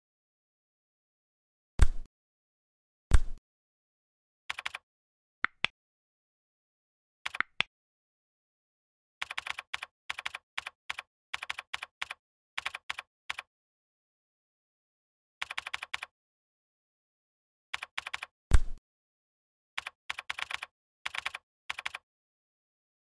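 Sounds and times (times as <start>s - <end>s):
keyboard typing: 4.5s - 4.8s, 7.3s - 7.7s, 9.2s - 13.5s, 15.4s - 16.1s, 17.8s - 18.3s, 19.8s - 22.1s.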